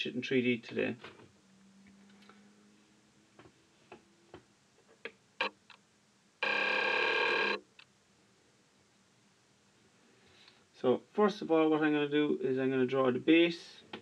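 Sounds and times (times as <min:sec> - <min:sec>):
loud buzzing tone: 0:06.4 - 0:07.6.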